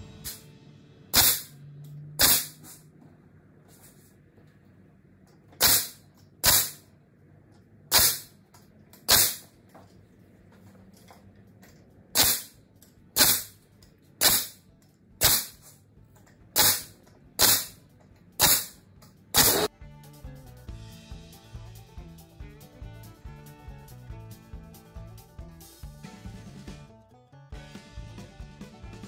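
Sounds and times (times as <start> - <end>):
pneumatic nailer firing: 1.1 - 1.6, 2.2 - 2.8, 5.6 - 6.8, 7.9 - 8.4, 9.1 - 9.5, 12.1 - 12.6, 13.2 - 13.6, 14.2 - 14.6, 15.2 - 15.7, 16.6 - 17.8, 18.4 - 19.7.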